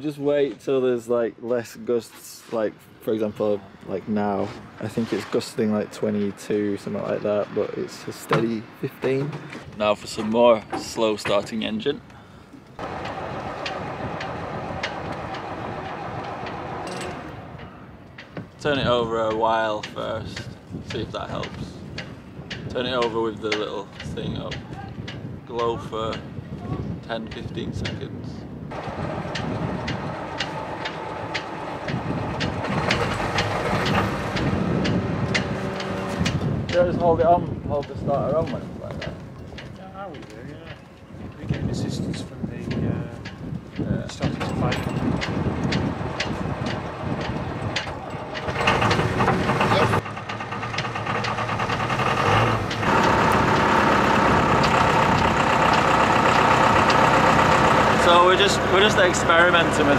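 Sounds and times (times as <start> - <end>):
diesel engine cranking and starting: 12.8 - 24.6, 28.7 - 37.4, 44.2 - 59.9.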